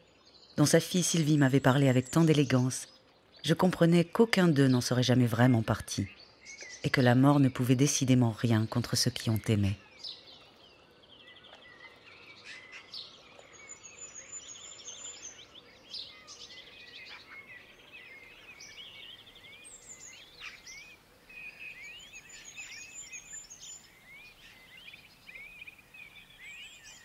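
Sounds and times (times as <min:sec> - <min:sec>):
small birds chirping and trilling: 0:00.0 - 0:27.0
faint background hiss: 0:00.2 - 0:27.0.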